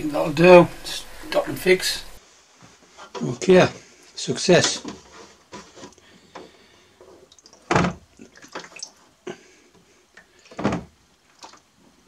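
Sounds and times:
liquid sloshing in tray: 7.0 - 9.0, 10.3 - 11.7.

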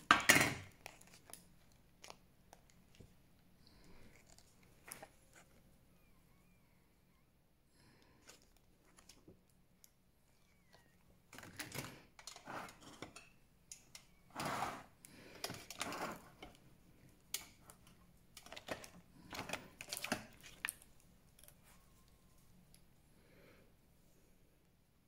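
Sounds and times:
rustling of packaging: 0.6 - 5.7.

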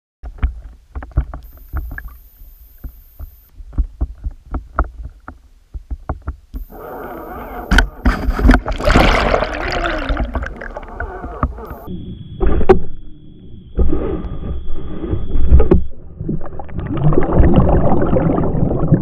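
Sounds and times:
underwater clicks and knocks: 0.2 - 6.7, 7.6 - 9.4, 10.0 - 11.9
low underwater rumble: 0.3 - 19.0
churning water: 6.6 - 11.9, 16.0 - 19.0.

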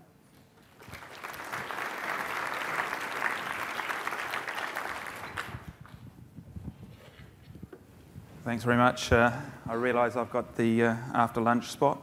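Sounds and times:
audience applauding: 0.6 - 5.8.

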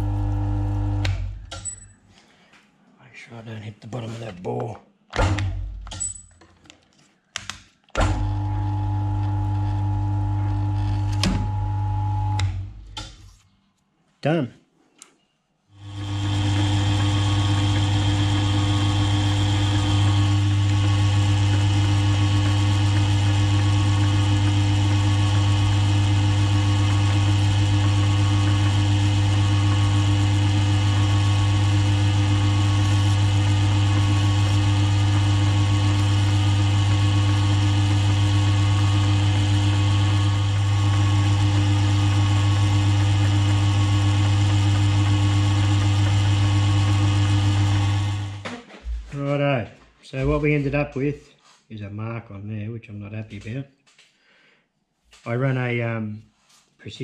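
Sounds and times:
drill motor humming: 0.0 - 1.4, 8.1 - 12.6, 15.8 - 48.4
drill bit drilling into metal: 15.8 - 48.3.

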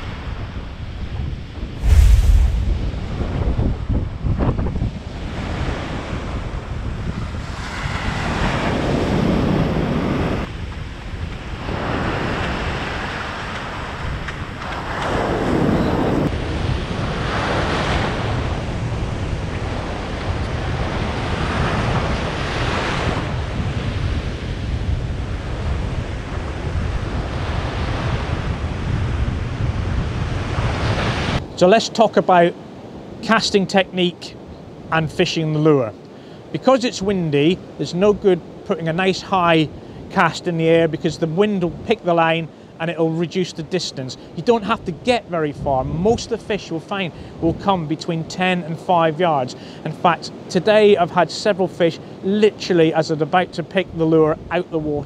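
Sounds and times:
wind buffeting microphone: 1.0 - 7.5, 23.0 - 31.4
surf breaking on beach: 1.8 - 4.0.

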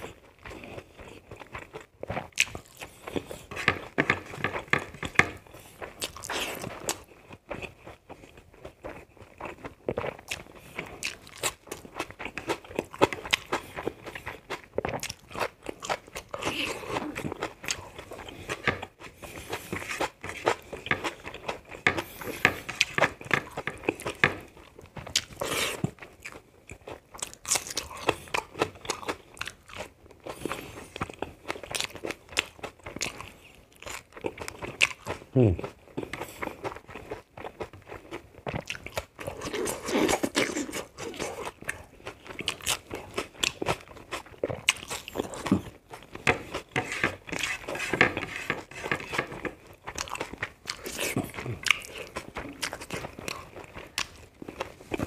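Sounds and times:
chewing with wet mouth clicks: 0.0 - 47.5, 49.0 - 55.0.

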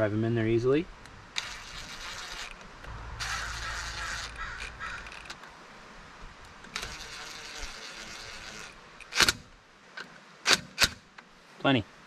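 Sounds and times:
cordless drill driving bolts: 1.4 - 5.4, 6.6 - 9.4.

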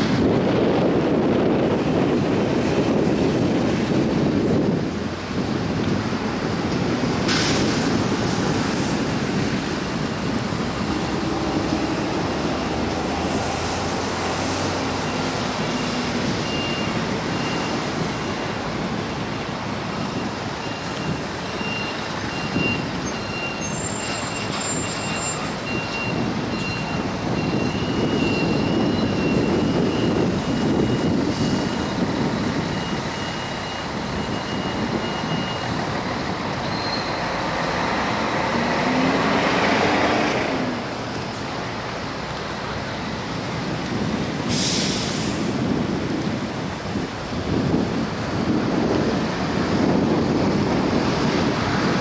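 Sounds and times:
diesel engine: 0.0 - 52.0
wind: 0.0 - 52.0.

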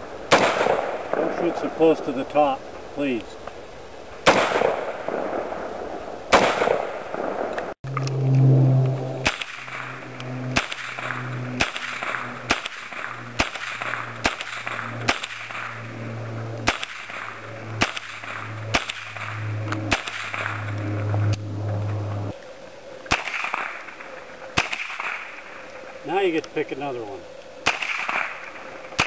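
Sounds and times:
rifle single shots: 0.3 - 1.6, 4.2 - 5.7, 6.3 - 7.6, 10.6 - 15.7, 27.6 - 29.0
low hum: 7.1 - 22.5.

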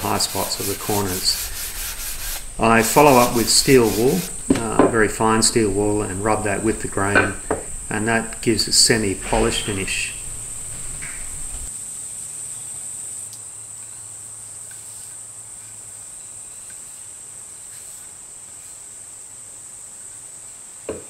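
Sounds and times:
insect chirring: 2.0 - 8.5.

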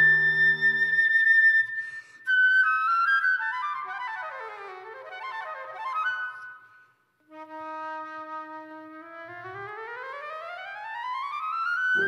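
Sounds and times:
flute melody: 0.0 - 6.7, 7.3 - 12.0.

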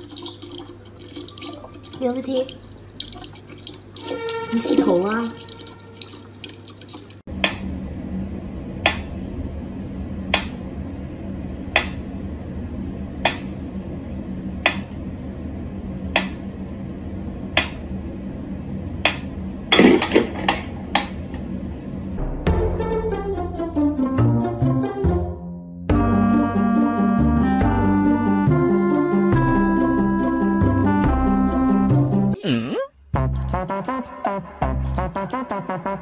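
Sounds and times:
low hum: 7.2 - 24.0.

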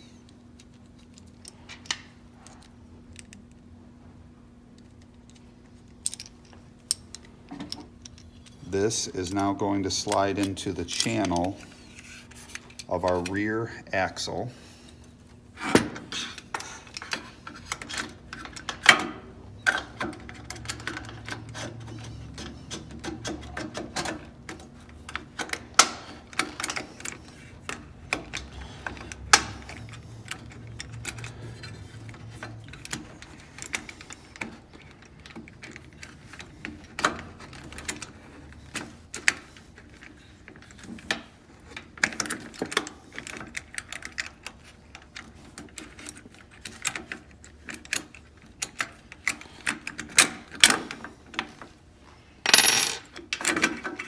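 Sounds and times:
small metal parts clinking: 52.4 - 53.2.

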